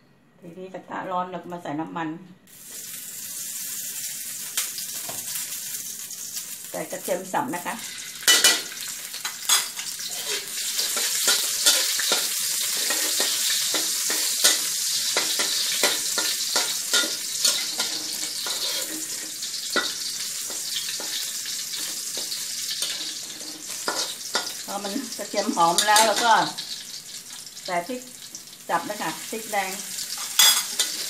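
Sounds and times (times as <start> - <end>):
garlic sizzling in hot oil: 2.5 - 31.0
metal spatula scraping a wok: 7.8 - 24.7, 30.0 - 31.0.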